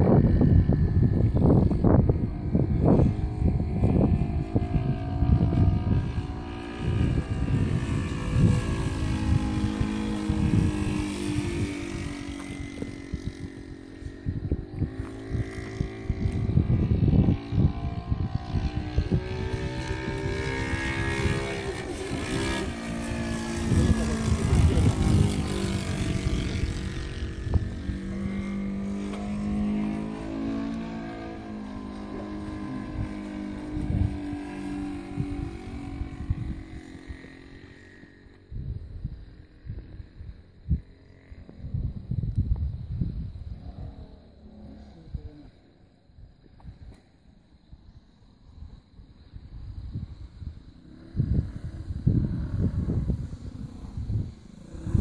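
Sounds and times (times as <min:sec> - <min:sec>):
model plane engine in flight: 0:00.0 - 0:55.0
wind rumble on microphone: 0:00.0 - 0:55.0.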